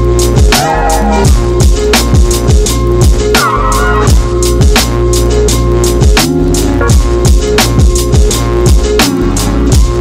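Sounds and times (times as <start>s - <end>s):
deep kick drums: 1.2s - 3.4s, 6.0s - 10.0s.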